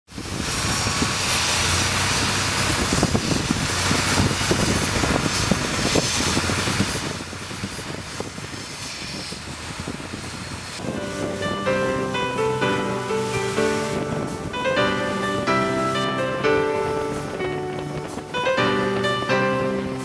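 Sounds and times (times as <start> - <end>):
water and wind rushing: 0.1 - 20.0
motorboat engine drone: 0.2 - 20.0.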